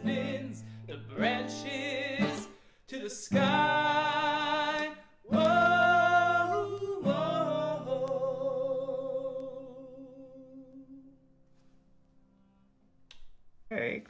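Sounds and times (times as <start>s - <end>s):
male voices singing in harmony: 0.0s - 11.1s.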